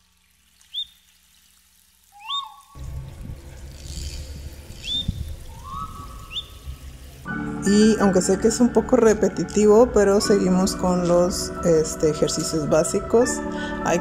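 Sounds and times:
whistled bird-like chirps: 0.7 - 1.0, 2.1 - 2.8, 4.8 - 6.6.

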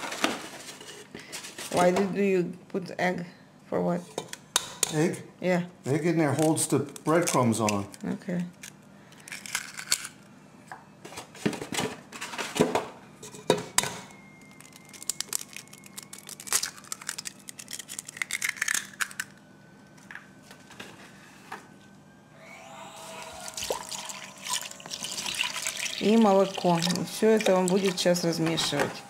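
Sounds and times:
packaging rustling: 14.4 - 19.3
milk pouring into a pot: 23.4 - 27.5.

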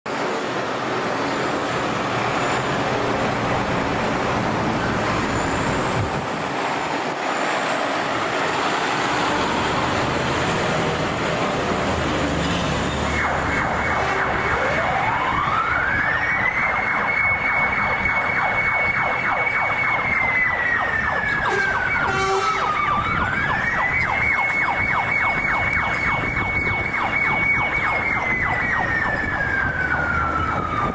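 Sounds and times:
siren wailing: 8.8 - 10.2, 12.8 - 30.9.

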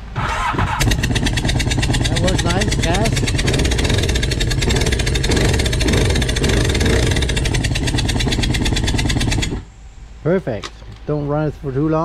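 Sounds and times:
jet ski engine running: 0.7 - 9.7.

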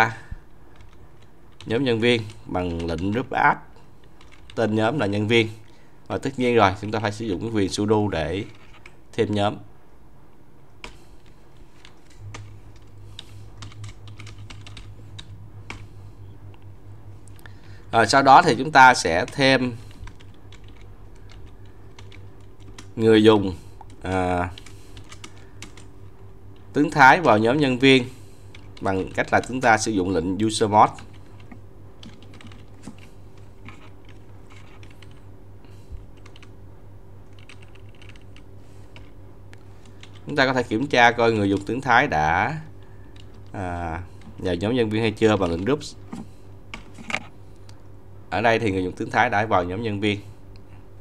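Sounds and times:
low steady hum: 0.0 - 51.0
keyboard typing: 0.7 - 3.3, 4.1 - 4.6, 10.8 - 15.9, 19.0 - 23.0, 23.8 - 25.9, 30.9 - 35.2, 36.0 - 36.6, 37.2 - 39.2, 39.8 - 40.4.

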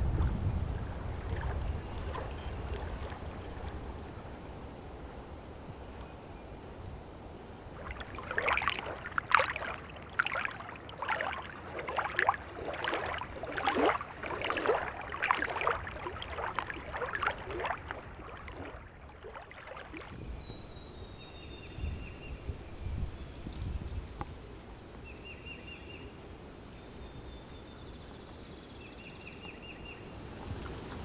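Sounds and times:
waves lapping on rocks: 7.7 - 20.1.

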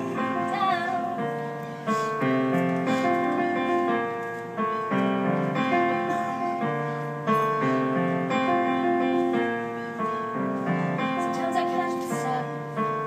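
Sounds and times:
digital piano slow chords: 0.0 - 13.0.

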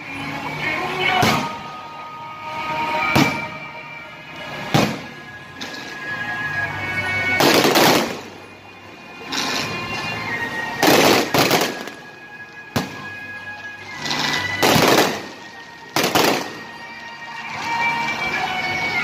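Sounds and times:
music: 0.0 - 19.0
fireworks bangs with crackling: 1.1 - 1.6, 3.1 - 3.6, 4.6 - 5.9, 7.3 - 8.3, 10.8 - 12.0, 12.7 - 13.2, 14.0 - 16.8.

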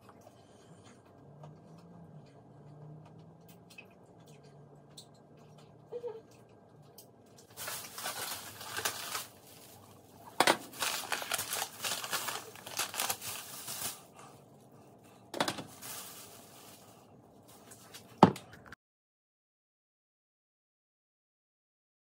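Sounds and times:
plastic bag rustling: 7.4 - 14.4, 15.4 - 18.4.

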